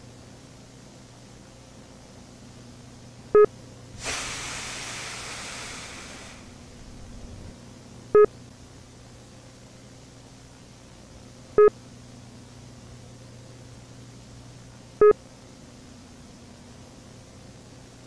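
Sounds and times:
low hum: 3.4s - 8.3s
rush of hissing noise: 3.9s - 7.5s.

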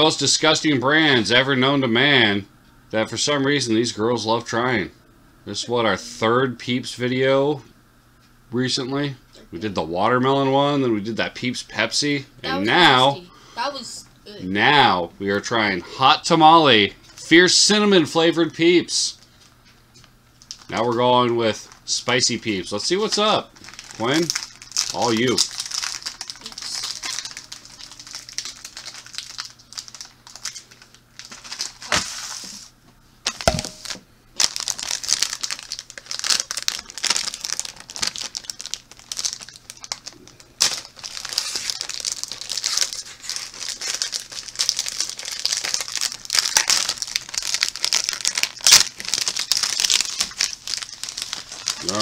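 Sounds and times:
plastic wrapping crinkling and tearing: 20.4s - 22.3s, 22.9s - 32.7s, 33.3s - 52.0s.

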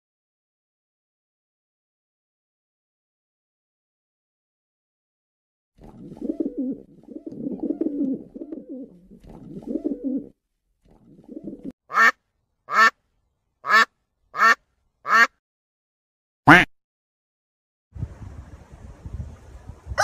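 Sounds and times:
pigeons cooing: 5.8s - 10.4s, 11.0s - 11.7s
duck quacking: 11.9s - 13.0s, 13.6s - 15.4s, 16.5s - 16.7s.

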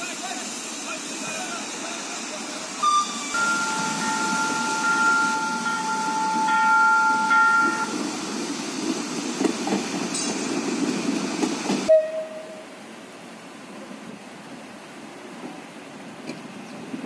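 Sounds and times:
street noise: 0.0s - 17.0s
two-tone train horn: 2.8s - 7.9s, 11.9s - 12.7s
train wheels clattering on rails: 3.3s - 11.9s.

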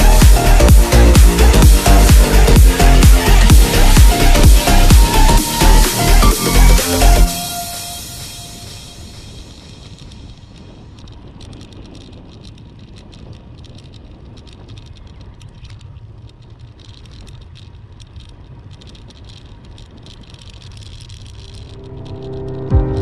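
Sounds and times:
wind rumbling on microphone: 0.0s - 23.0s
small rattling clicks: 9.2s - 22.8s.

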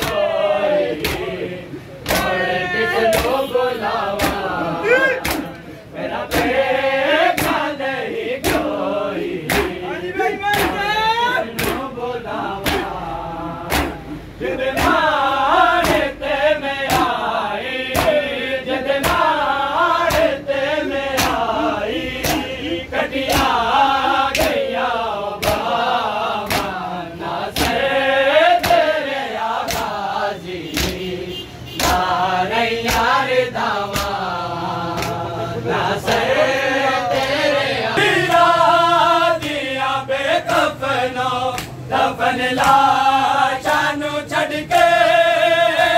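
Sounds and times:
chest-beating slaps: 0.0s - 3.5s, 4.1s - 12.0s, 12.6s - 13.0s, 13.6s - 31.0s, 31.8s - 32.2s, 32.8s - 35.2s, 41.5s - 41.9s, 42.6s - 43.0s
men chanting in unison: 0.0s - 45.9s.

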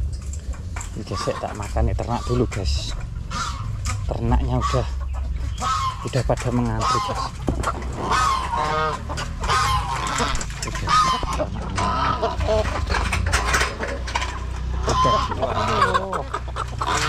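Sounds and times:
chickens clucking: 0.0s - 17.0s
goose honking: 1.0s - 17.0s
clicks and knocks: 6.1s - 14.7s.

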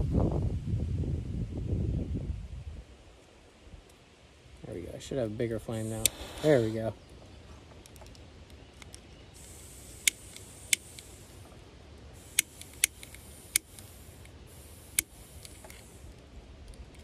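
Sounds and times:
gas torch hissing: 5.6s - 7.0s, 9.3s - 16.2s
sharp clicks: 5.8s - 6.8s, 7.8s - 11.4s, 12.2s - 17.0s.

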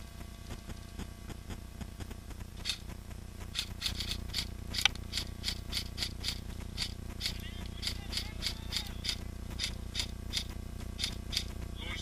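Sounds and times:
airsoft rifle shots: 3.5s - 11.6s.

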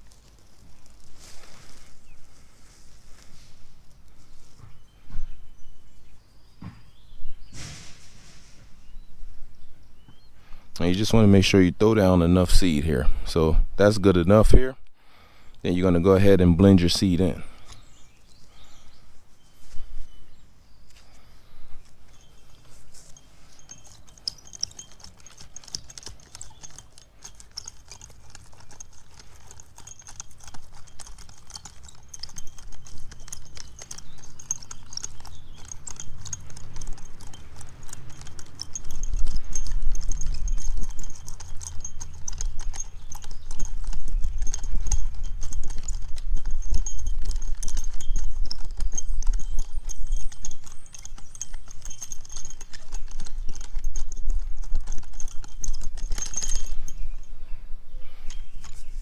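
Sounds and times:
metal tines clattering in soil: 0.0s - 3.6s, 20.8s - 57.4s.

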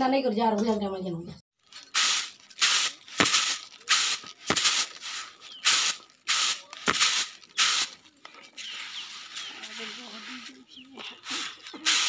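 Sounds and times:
rice grains swishing in tray: 1.9s - 8.0s, 8.6s - 12.0s.

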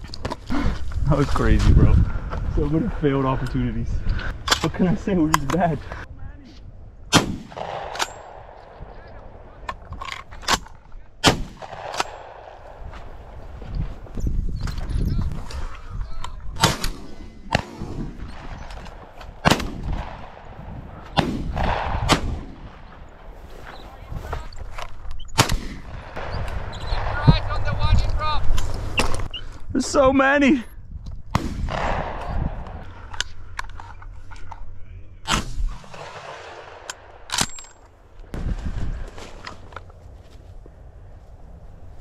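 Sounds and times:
shotgun shots: 7.1s - 9.6s, 11.2s - 13.0s, 16.6s - 23.0s, 25.4s - 27.6s, 31.3s - 32.8s, 35.3s - 37.6s.

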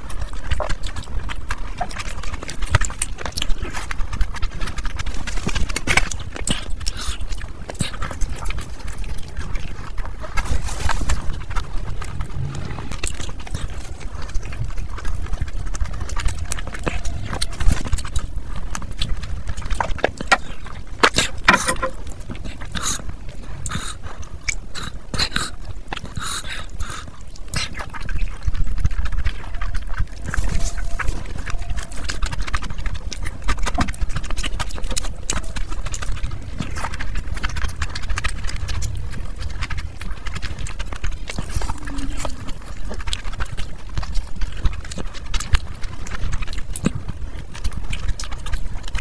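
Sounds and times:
wet chewing and lip-smacking: 0.0s - 49.0s
low rumble: 8.9s - 19.8s.

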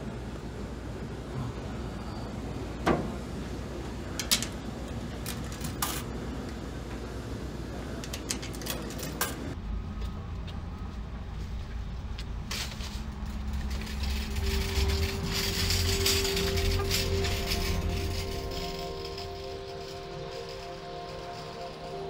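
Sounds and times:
low rumble of traffic: 0.0s - 22.0s
coins clicking into coin slot: 4.1s - 6.2s, 8.0s - 9.6s, 12.5s - 22.0s
steady high tone: 12.8s - 22.0s.

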